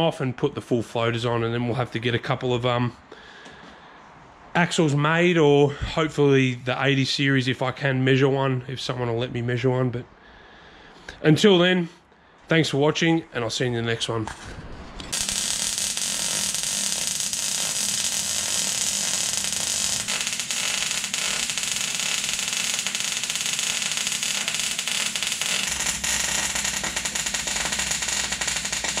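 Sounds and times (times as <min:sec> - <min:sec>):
welding arc crackling hiss: 0:15.0 - 0:29.0.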